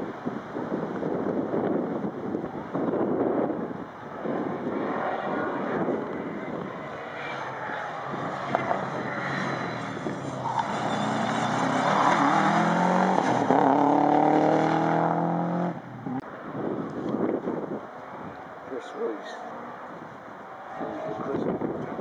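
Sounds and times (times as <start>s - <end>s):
wind on microphone: 0.0s - 10.5s, 11.8s - 18.6s, 19.9s - 22.0s
rally car engine accelerating: 7.1s - 16.2s.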